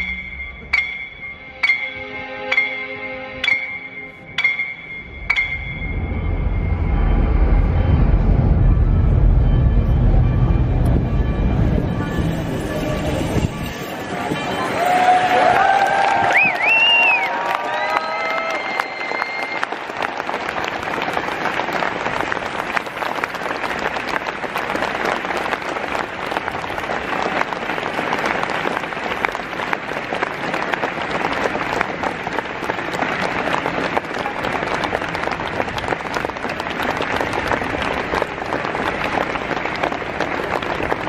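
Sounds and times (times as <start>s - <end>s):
crowd applauding: 13.1s - 41.0s.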